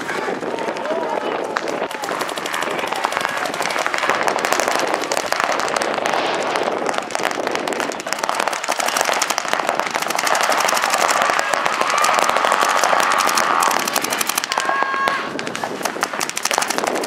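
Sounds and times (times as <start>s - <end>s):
paintball markers firing: 0.0s - 17.0s.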